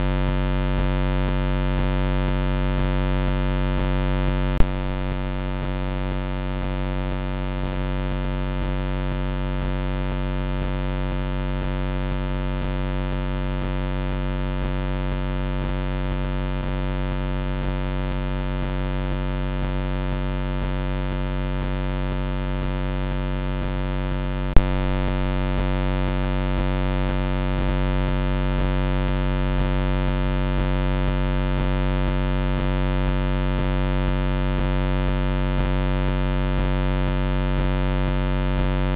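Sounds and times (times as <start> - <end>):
electrical buzz: 3.7 - 9.0, 22.7 - 31.6.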